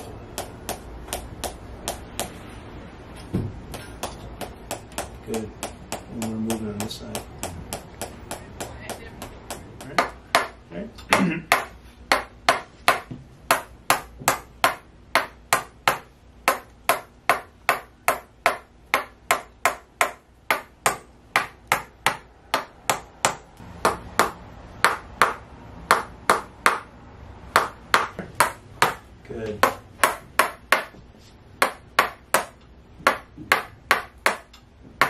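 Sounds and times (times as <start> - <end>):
mallet clacking on wooden stick: 3.7 - 10.6, 31.6 - 34.7.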